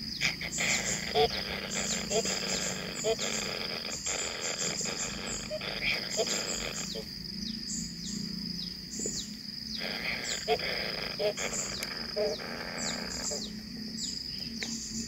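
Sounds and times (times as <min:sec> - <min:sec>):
nestlings rasping begging calls: 0:00.0 - 0:15.0.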